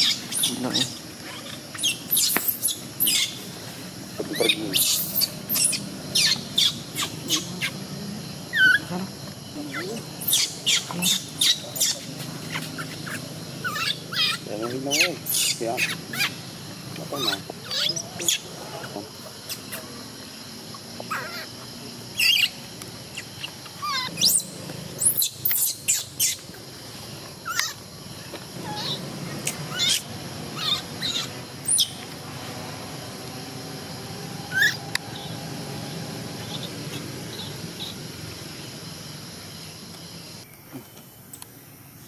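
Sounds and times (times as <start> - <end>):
baby monkey squealing: 0.0 - 3.4, 4.3 - 7.8, 8.5 - 8.9, 9.7 - 16.4, 17.1 - 19.8, 21.1 - 22.6, 23.2 - 26.4, 27.4 - 27.8, 28.6 - 32.0, 34.5 - 34.8.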